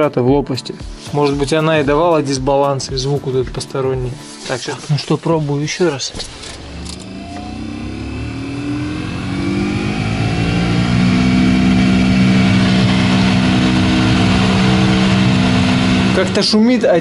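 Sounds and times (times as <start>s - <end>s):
heater blower fan droning: 6.2s - 17.0s.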